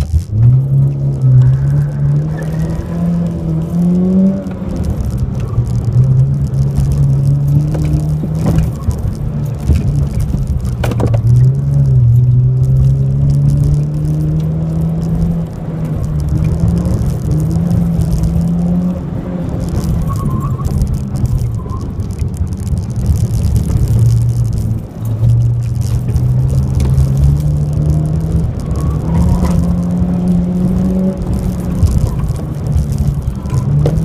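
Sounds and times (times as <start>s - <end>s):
car engine accelerating and slowing: 0.0s - 34.0s.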